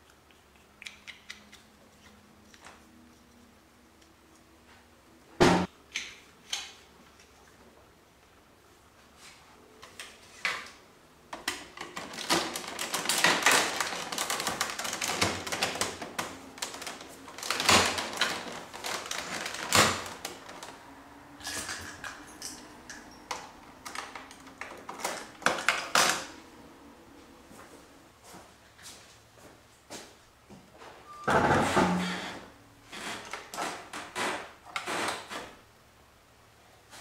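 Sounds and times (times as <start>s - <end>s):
plastic panels clicking and rattling: 11.4s - 20.7s.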